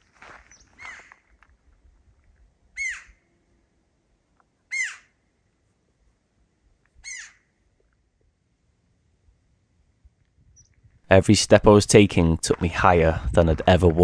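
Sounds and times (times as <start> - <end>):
bird calling: 0.4 - 1.2, 2.8 - 3.3, 4.7 - 5.2, 7.0 - 7.6.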